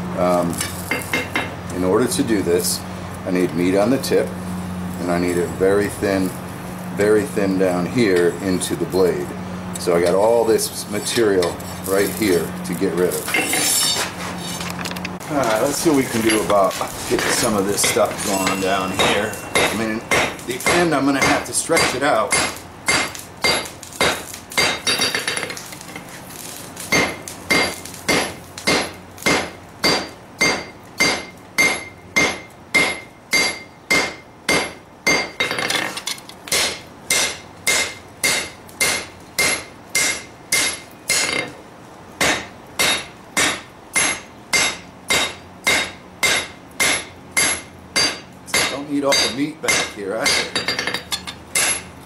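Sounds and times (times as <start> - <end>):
hammer striking steel on anvil: 16.2 - 16.6, 17.3 - 25.6, 26.9 - 41.5, 42.2 - 51.9.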